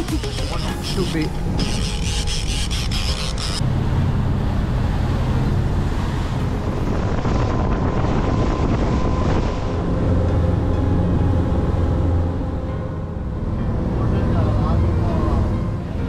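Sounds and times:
boat engine drone: 0.0 - 16.0
water splashing along hull: 0.0 - 16.0
wind buffeting microphone: 3.7 - 12.2.

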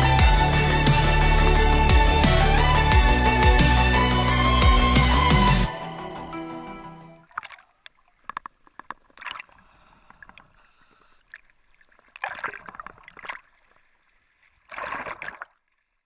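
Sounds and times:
water splashing and sloshing: 6.8 - 16.0
water bubbling: 7.1 - 10.6, 11.2 - 15.8.

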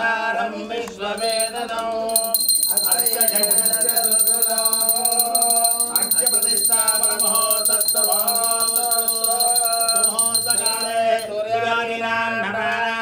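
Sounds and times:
small bell ringing rapidly: 1.2 - 11.4.

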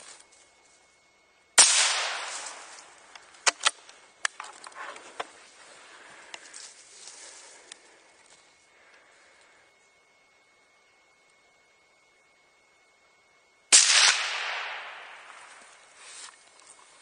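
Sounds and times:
rifle shot: 1.6 - 2.8, 13.7 - 15.4.

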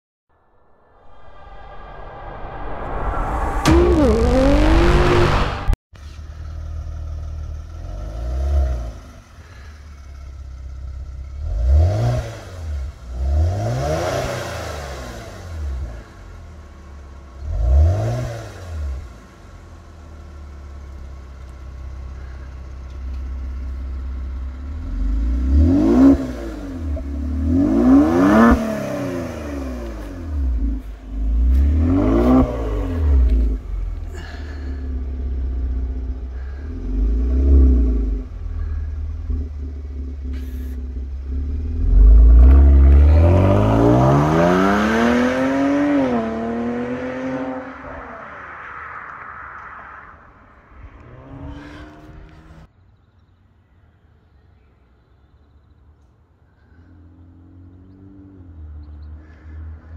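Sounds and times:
car engine revving: 1.0 - 5.8, 6.6 - 21.1, 23.1 - 52.7
car accelerating hard: 2.7 - 5.8, 24.7 - 52.7.

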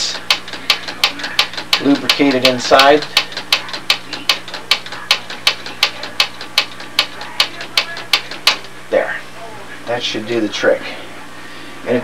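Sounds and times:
steady low hum: 0.0 - 12.0
cassette lever clicking: 0.3 - 8.6.

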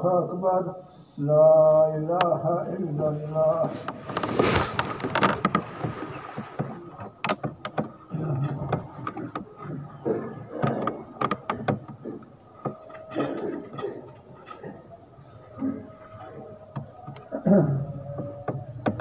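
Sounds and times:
low murmurs: 0.0 - 19.0
irregular clicks and knocks: 3.5 - 17.4, 18.0 - 19.0.

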